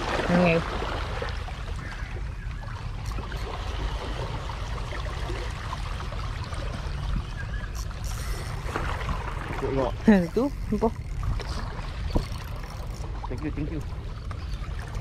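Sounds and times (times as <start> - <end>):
waves splashing against rocks: 0.0 - 2.0.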